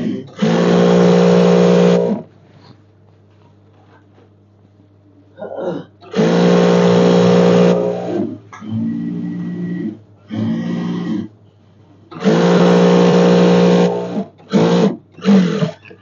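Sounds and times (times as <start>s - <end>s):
sewing machine stitching: 0.3s - 2.3s, 6.1s - 8.3s, 12.1s - 16.0s.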